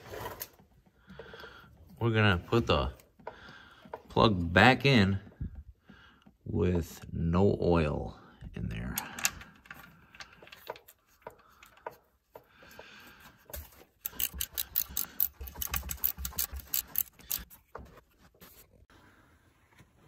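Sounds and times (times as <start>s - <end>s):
ratchet wrench clicking: 14.0s - 17.5s
small metal clicks: 14.0s - 17.5s.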